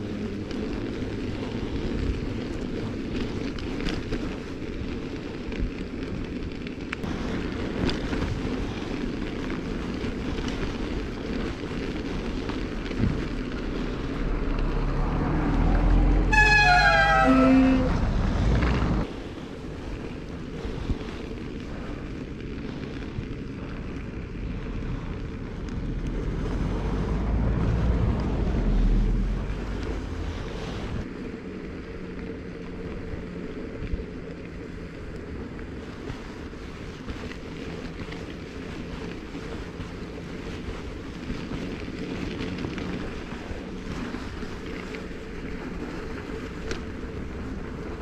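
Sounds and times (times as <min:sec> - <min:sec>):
wind noise on microphone: 0:00.0 - 0:32.0
low rumble: 0:11.5 - 0:36.3.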